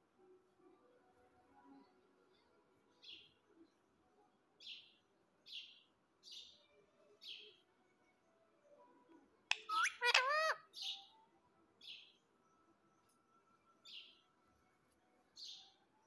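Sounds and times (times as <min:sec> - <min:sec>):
parakeet chirping: 0:09.5 - 0:11.0
parakeet whistled calls: 0:09.5 - 0:11.0.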